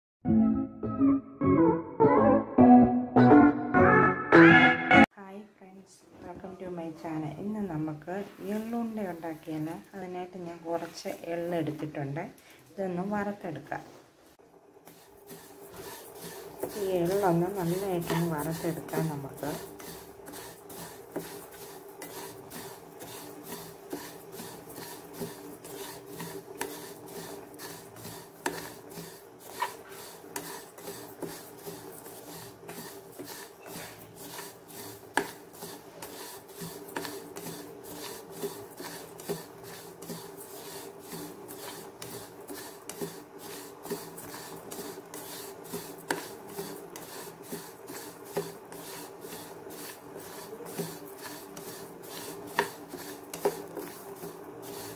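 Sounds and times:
spatula scraping seeds in pan: 14.8s - 54.9s.

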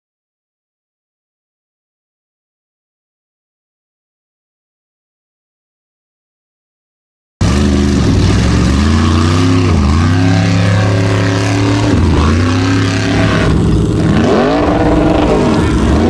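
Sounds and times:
buggy engine revving: 7.4s - 16.0s.

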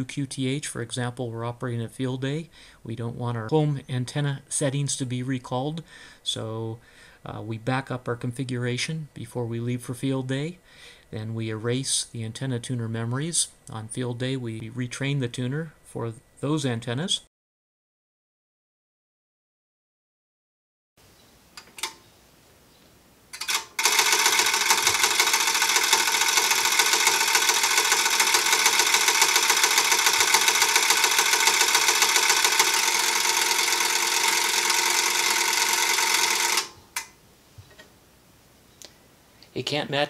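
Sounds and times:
relays clicking: 23.3s - 37.9s.

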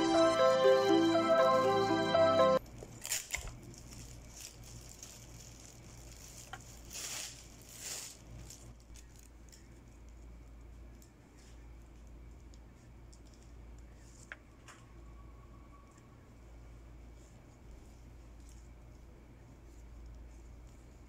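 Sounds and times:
background music: 0.0s - 2.6s
foil and flowers rustling: 2.8s - 10.2s.

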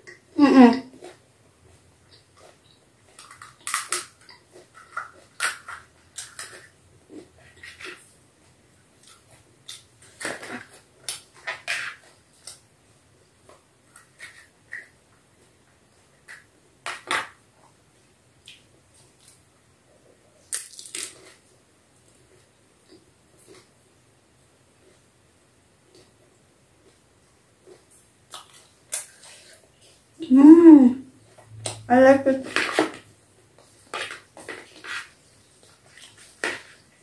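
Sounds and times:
crisp shells cracking: 3.1s - 6.7s, 20.5s - 21.4s.

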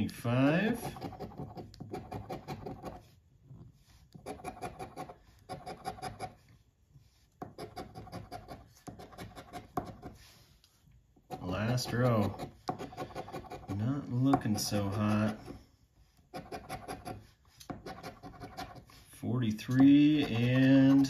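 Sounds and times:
coin scraping scratch card: 0.7s - 3.0s, 4.2s - 6.4s, 7.5s - 10.2s, 11.3s - 15.5s, 16.3s - 17.2s, 17.8s - 18.9s, 19.8s - 21.0s.

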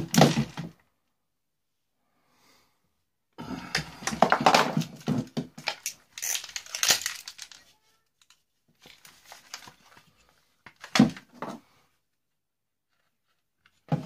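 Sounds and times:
plastic crackling and clicking: 4.0s - 10.0s.

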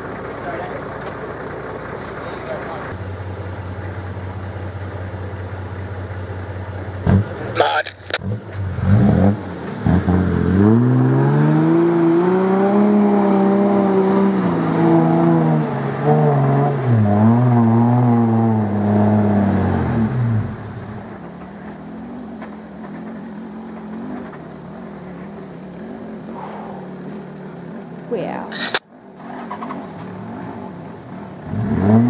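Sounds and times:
engine revving hard under load: 7.0s - 21.1s, 31.4s - 32.0s.

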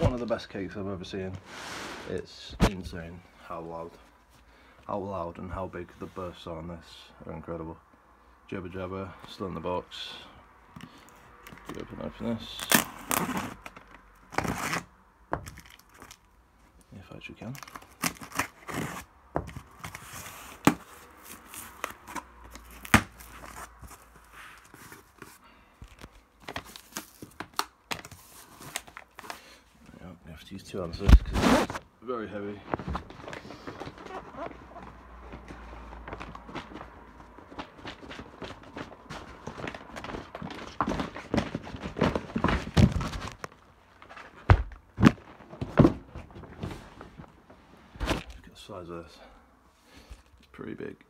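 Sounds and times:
cardboard tearing and rustling: 12.6s - 14.9s, 17.5s - 25.4s, 31.0s - 31.8s, 32.8s - 43.5s
cardboard rustling and knocks: 32.8s - 47.3s.

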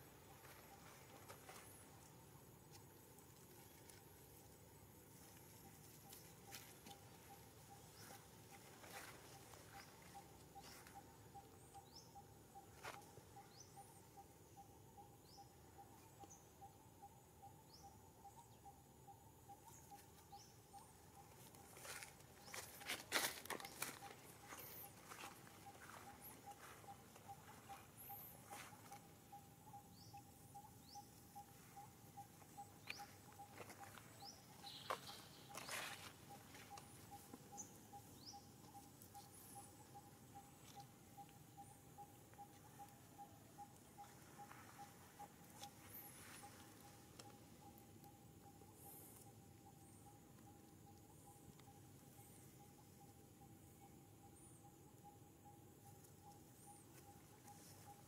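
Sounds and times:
rustling of dry leaves: 21.6s - 26.8s, 32.9s - 37.1s.

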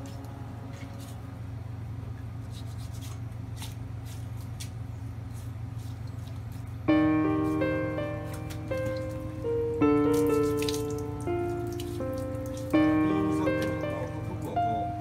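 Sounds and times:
music with held chords: 0.0s - 1.5s, 6.8s - 15.0s
steady low hum: 0.0s - 15.0s.

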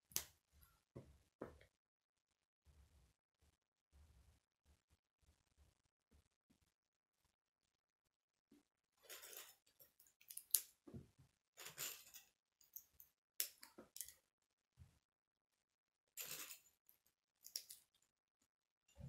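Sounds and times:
plastic pieces snapping together: 10.2s - 10.8s.

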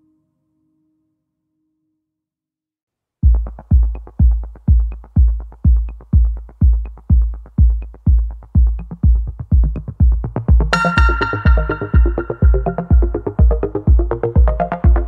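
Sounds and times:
electronic music with drum-machine kick: 3.2s - 15.0s.

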